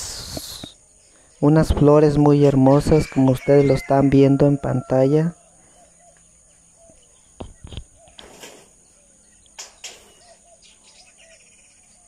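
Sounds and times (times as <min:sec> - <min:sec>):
bird chirps: 0:05.1 - 0:12.0.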